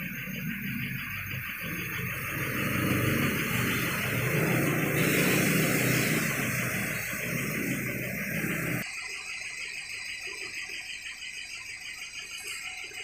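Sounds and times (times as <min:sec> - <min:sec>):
mechanical running noise with hiss: 0:00.0 - 0:08.8.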